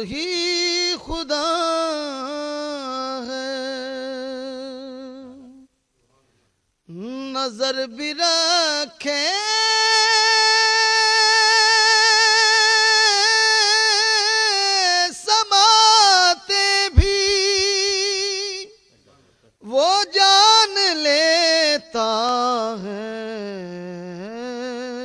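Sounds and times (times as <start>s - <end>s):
man singing long held notes: 6.8s - 18.8s, 19.6s - 25.0s.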